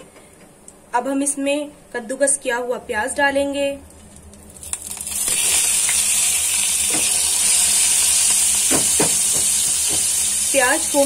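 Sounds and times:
onion sizzling in hot oil: 0:04.6 - 0:11.0.

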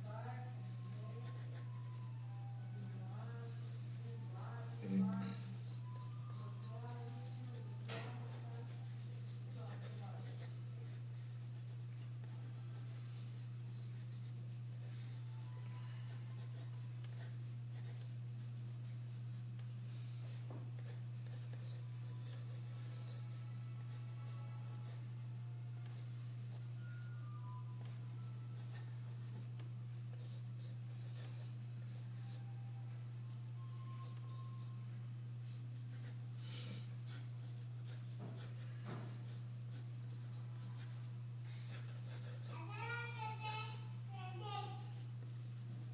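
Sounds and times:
pencil scratching on paper: 0:00.0 - 0:19.7, 0:20.6 - 0:32.6, 0:35.4 - 0:36.3, 0:36.9 - 0:41.1, 0:41.7 - 0:43.4, 0:45.0 - 0:45.9
low hum: 0:00.3 - 0:07.5.

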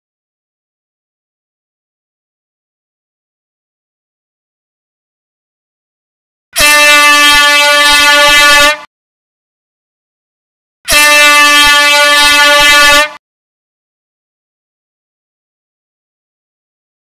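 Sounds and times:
air horn blasts: 0:06.6 - 0:08.9, 0:10.9 - 0:13.2.

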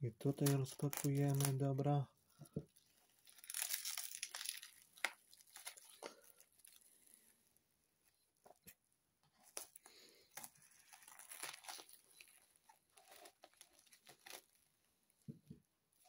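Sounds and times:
plastic wrap crinkling and tearing: 0:00.2 - 0:07.3, 0:09.4 - 0:14.9.

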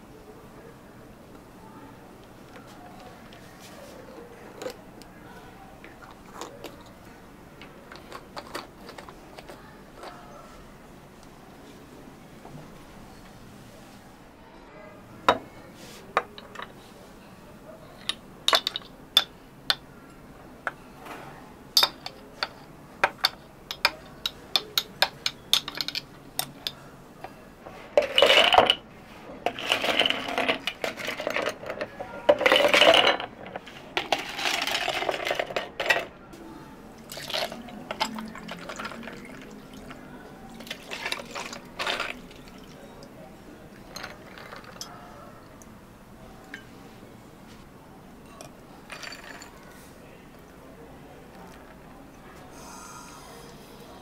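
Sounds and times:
hard objects clinking against cups: 0:05.9 - 0:10.4, 0:16.2 - 0:16.8, 0:18.0 - 0:20.9, 0:21.8 - 0:27.4, 0:28.0 - 0:28.8, 0:29.4 - 0:36.1, 0:37.0 - 0:45.6, 0:48.2 - 0:49.8
liquid pouring: 0:37.0 - 0:43.1.

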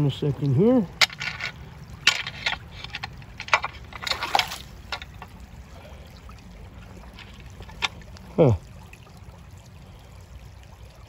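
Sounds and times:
running water: 0:00.0 - 0:11.0
water sloshing: 0:00.0 - 0:11.0
rake scraping on stones: 0:01.0 - 0:05.3.

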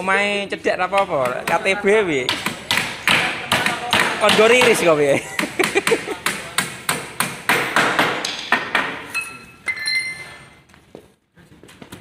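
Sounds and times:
hammer striking nails into wood: 0:02.3 - 0:04.9, 0:05.6 - 0:09.0.

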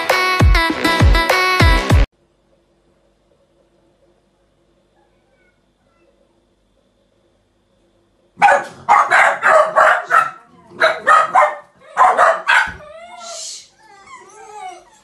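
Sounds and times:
dogs barking: 0:08.4 - 0:13.0
dogs whining and whimpering: 0:12.7 - 0:15.0.

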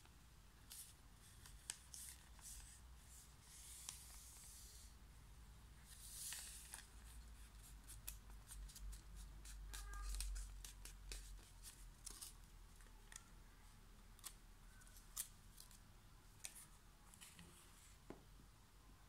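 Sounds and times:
paper being folded: 0:00.6 - 0:04.9, 0:05.9 - 0:13.3.

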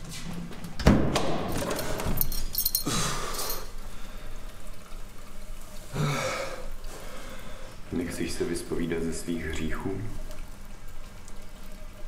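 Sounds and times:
light metallic clinks: 0:01.7 - 0:03.8.

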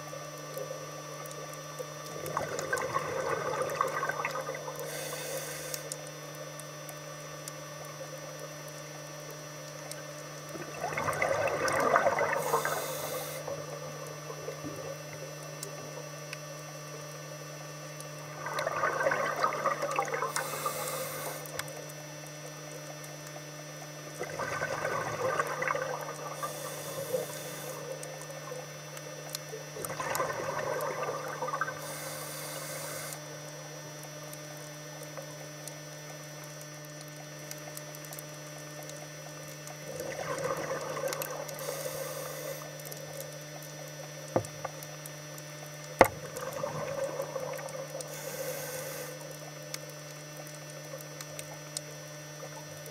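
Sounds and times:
exhaled bubbles gurgling: 0:00.0 - 0:52.9
steady low hum: 0:00.0 - 0:52.9
diver breathing through regulator: 0:04.8 - 0:05.9, 0:12.4 - 0:13.6, 0:20.3 - 0:21.6, 0:26.4 - 0:28.0, 0:31.8 - 0:33.2, 0:41.5 - 0:42.8, 0:48.0 - 0:49.3.

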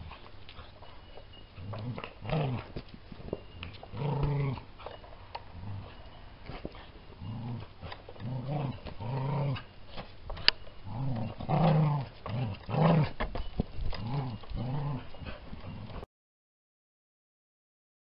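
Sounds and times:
dog growling: 0:00.0 - 0:02.8, 0:03.6 - 0:09.7, 0:10.4 - 0:13.2, 0:13.8 - 0:16.1.

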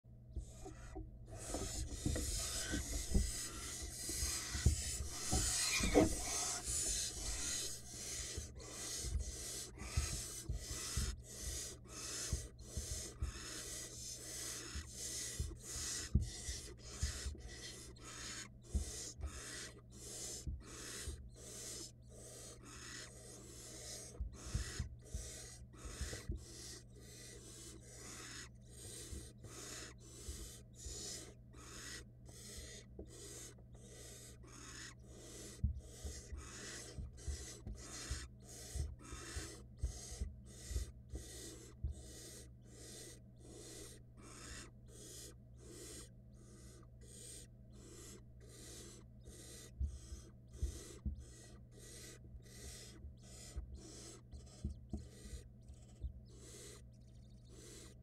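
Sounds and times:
owl nestlings hissing calls: 0:00.4 - 0:58.0
scuffling thumps in nest box: 0:01.4 - 0:07.8.

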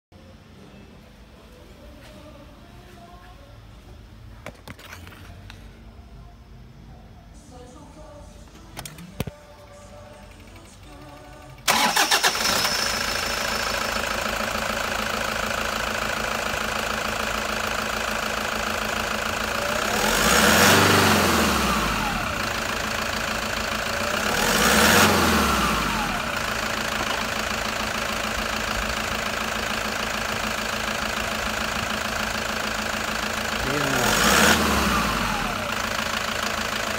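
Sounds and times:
diesel engine idling: 0:09.7 - 0:36.9
engine revving: 0:11.7 - 0:13.0, 0:19.6 - 0:22.8, 0:24.0 - 0:26.4, 0:33.6 - 0:36.1.

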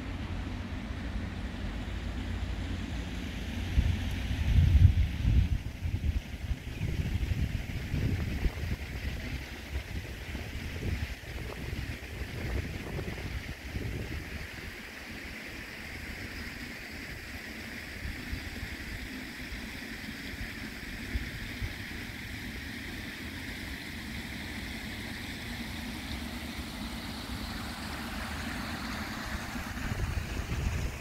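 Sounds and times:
steady outdoor hiss: 0:00.0 - 0:31.0
wind buffeting microphone: 0:03.6 - 0:14.8, 0:29.2 - 0:31.0.

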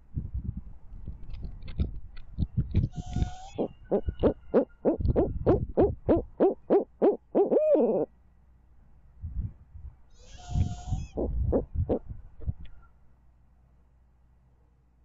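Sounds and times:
owl hooting: 0:02.9 - 0:08.1, 0:10.2 - 0:12.1.

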